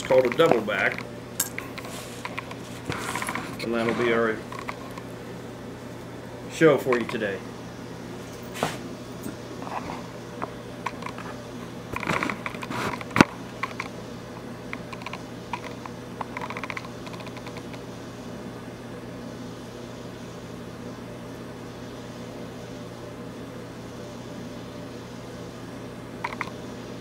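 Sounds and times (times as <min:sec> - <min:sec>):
gas burner flame hissing: 0:00.0 - 0:16.2
light clicks and clinks: 0:00.2 - 0:01.8.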